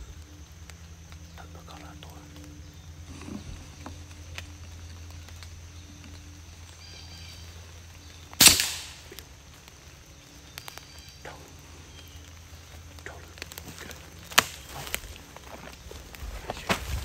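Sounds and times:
faint clicks: 0:00.0 - 0:06.8, 0:07.7 - 0:16.8
air rifle shot: 0:08.4 - 0:09.2.

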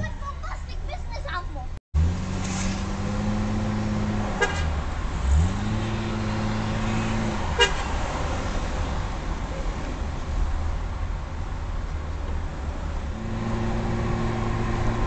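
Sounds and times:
city traffic: 0:00.0 - 0:15.0
engine hum: 0:00.0 - 0:15.0
car horn beeps: 0:04.4 - 0:04.8, 0:07.5 - 0:08.0.

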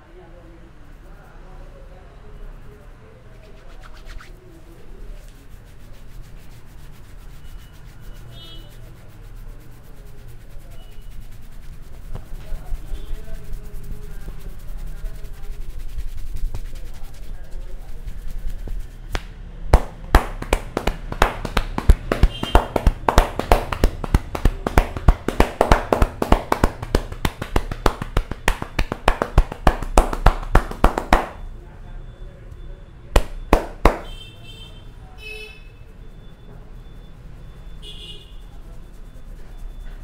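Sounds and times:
hands tapping on scalp: 0:05.1 - 0:31.4, 0:33.2 - 0:34.1.

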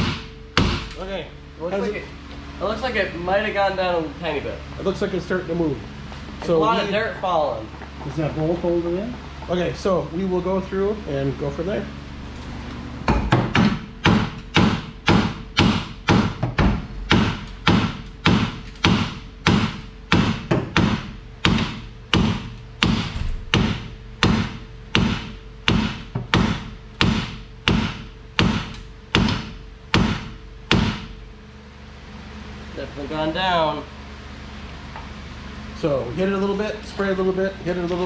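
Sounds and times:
hammer striking steel: 0:00.0 - 0:01.0, 0:13.1 - 0:31.2.

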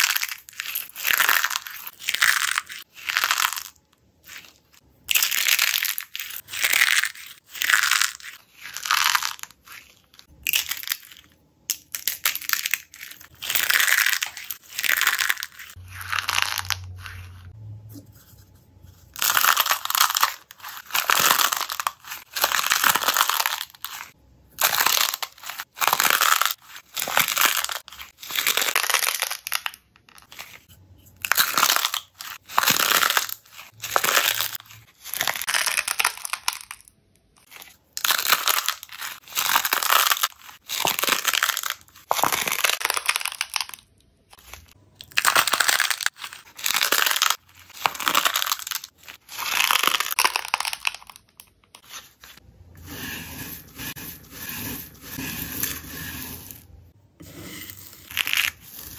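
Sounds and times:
slime cups crackling and crunching: 0:00.0 - 0:58.9.

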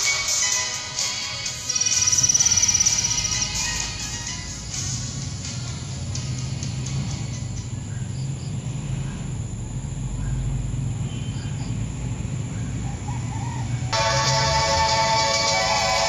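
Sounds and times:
faint bird chirps: 0:01.7 - 0:03.9, 0:07.1 - 0:09.3, 0:10.2 - 0:11.8
insect noise: 0:01.7 - 0:05.3, 0:05.9 - 0:13.8.

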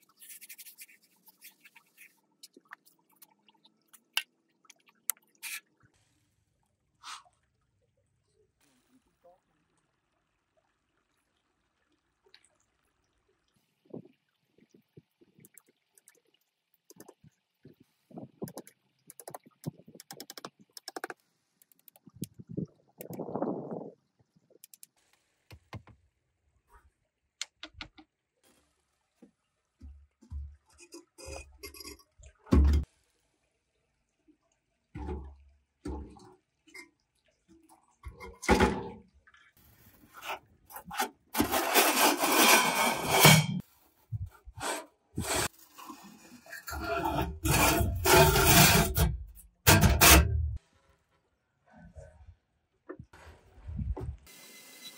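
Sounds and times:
clicks knocks and scrapes: 0:40.2 - 0:43.6, 0:46.7 - 0:50.6.

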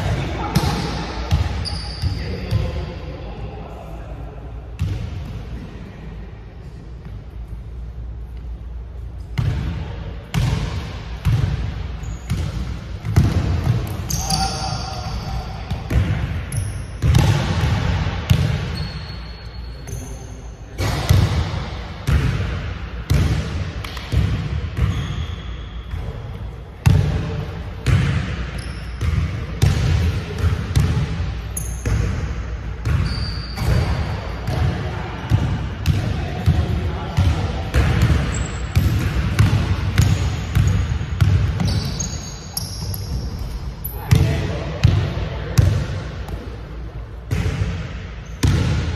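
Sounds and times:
sneaker squeaks: 0:00.6 - 0:02.7, 0:12.0 - 0:12.6, 0:13.8 - 0:15.7, 0:16.5 - 0:17.2, 0:18.6 - 0:20.9, 0:24.8 - 0:26.2, 0:28.5 - 0:29.2, 0:31.5 - 0:32.1, 0:32.8 - 0:34.6, 0:38.2 - 0:39.0, 0:40.0 - 0:44.2, 0:48.2 - 0:48.5.

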